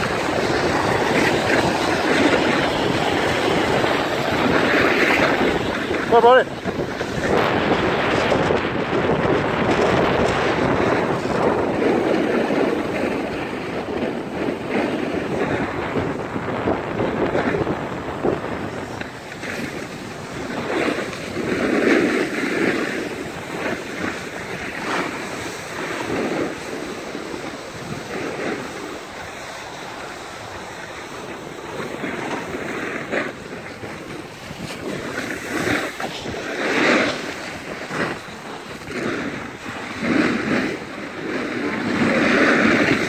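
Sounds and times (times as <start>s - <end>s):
skis scraping over snow: 0.0s - 43.0s
wind on microphone: 0.0s - 43.0s.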